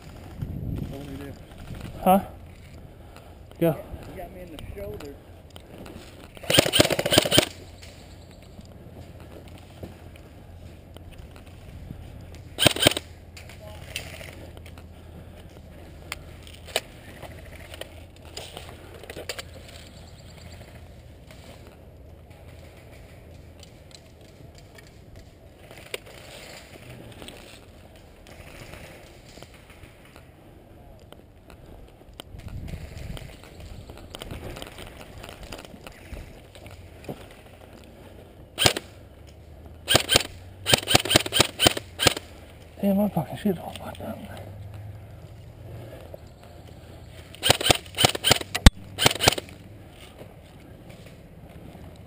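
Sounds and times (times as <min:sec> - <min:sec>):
sharp clicks: 0:04.5 - 0:08.0, 0:12.2 - 0:14.9, 0:38.6 - 0:38.9, 0:39.9 - 0:42.6, 0:47.2 - 0:49.6
airsoft gun shots: 0:06.4 - 0:07.5, 0:12.6 - 0:13.0, 0:39.9 - 0:42.3, 0:47.4 - 0:49.4.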